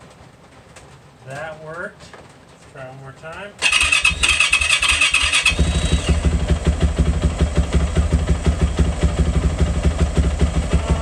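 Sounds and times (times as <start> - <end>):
electric starter cranking engine: 3.6 - 6.5
motorcycle engine idling: 3.6 - 11.0.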